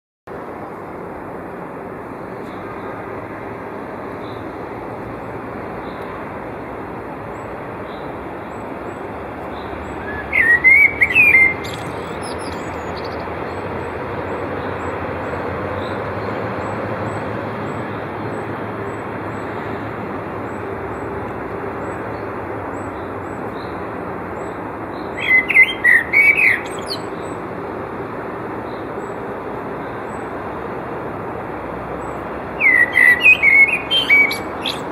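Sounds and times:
blackbird singing: 7.4 - 19.4, 24.4 - 27.4, 32.0 - 34.9.

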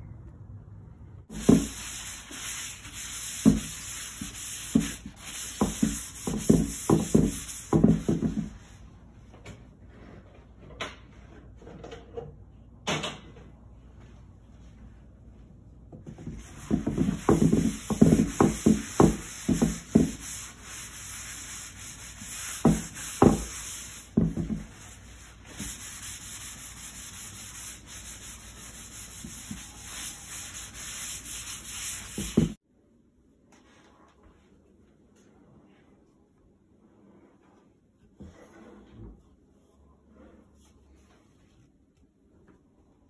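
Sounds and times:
rag rubbing wood: 1.3 - 8.5, 16.3 - 32.6
rag wiping wood: 1.3 - 8.7, 16.2 - 32.6.

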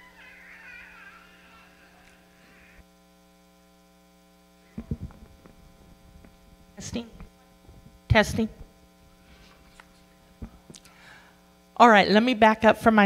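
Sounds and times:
electrical mains hum: 0.0 - 13.0
microphone handling thumps: 4.7 - 8.8, 10.3 - 10.8.

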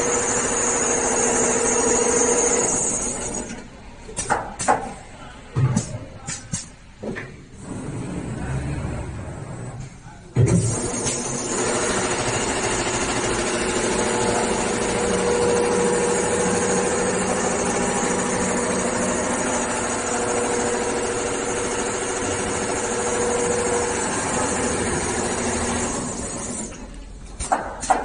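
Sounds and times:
sewing machine running: 10.6 - 26.8.

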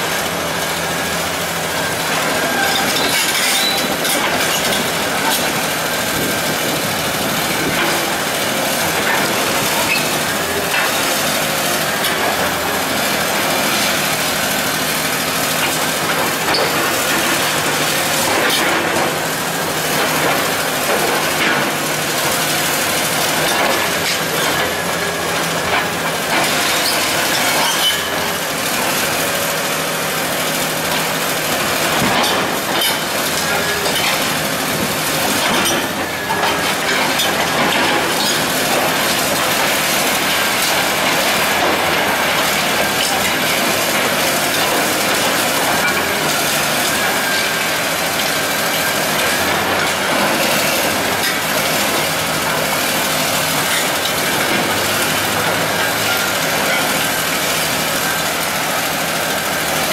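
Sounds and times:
excavator diesel engine under load: 0.0 - 59.9.

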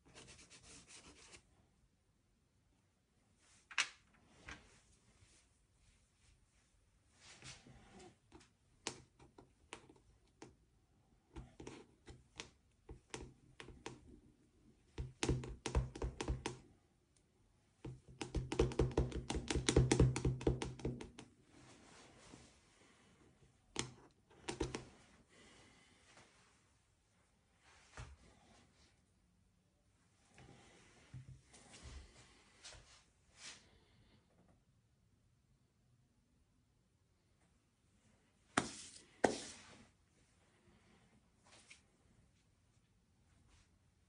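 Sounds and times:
pastel stick tapping on paper: 11.4 - 14.1, 14.9 - 16.6, 17.8 - 21.3, 23.7 - 24.9.

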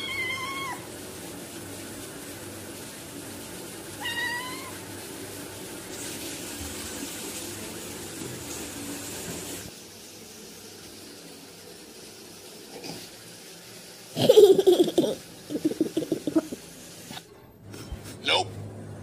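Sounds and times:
cat meowing: 0.0 - 0.8, 4.0 - 4.9.

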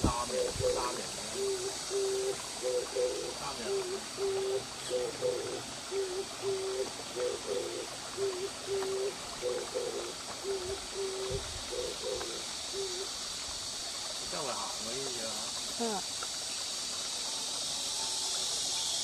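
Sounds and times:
bird cooing: 0.0 - 13.1
faint trickle of water: 0.0 - 19.0.

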